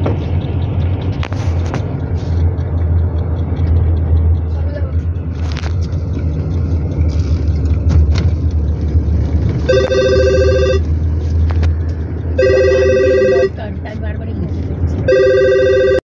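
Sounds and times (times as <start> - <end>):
car road and engine rumble: 0.0 - 16.0
two-tone car horn: 9.6 - 10.9, 12.4 - 13.6, 15.1 - 16.0.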